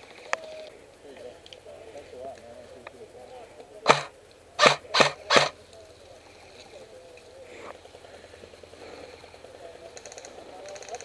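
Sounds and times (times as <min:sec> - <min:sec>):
airsoft rifle shots: 0:03.8 - 0:05.6.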